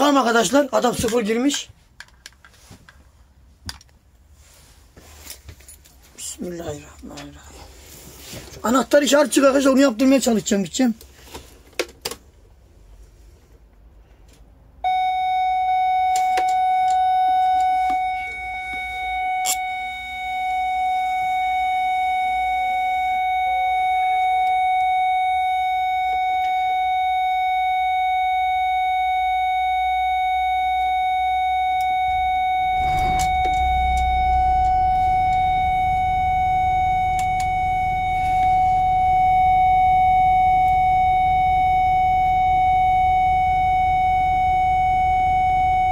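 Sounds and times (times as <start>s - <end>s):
warning buzzer steady high tone: 14.9s - 45.9s
diesel engine starting and idling: 31.8s - 39.5s.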